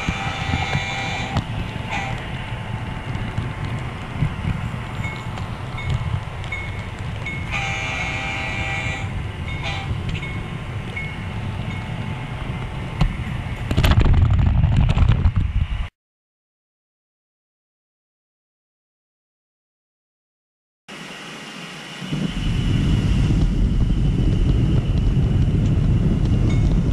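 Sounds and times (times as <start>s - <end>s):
train horn: 0.0s - 2.6s, 7.4s - 10.3s.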